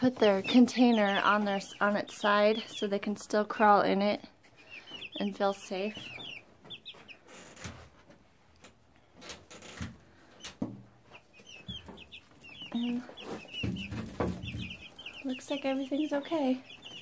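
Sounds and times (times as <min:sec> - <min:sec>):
baby chicks peeping: 0:00.0 - 0:17.0
knocks and rustles: 0:06.6 - 0:15.1.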